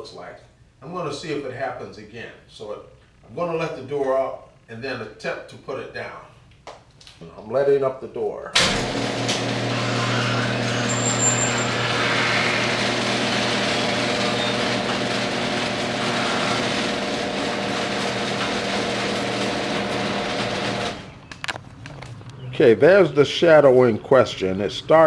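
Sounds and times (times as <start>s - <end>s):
garage door opener motor hum: 8.6s - 21.3s.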